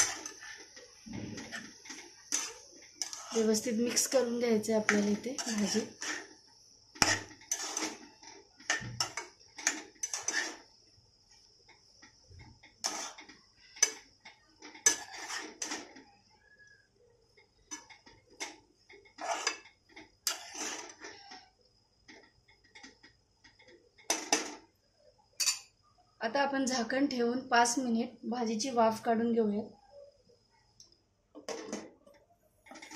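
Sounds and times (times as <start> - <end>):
spatula scraping a pan: 0.0 - 10.8, 12.7 - 16.0, 17.7 - 21.5, 32.7 - 32.9.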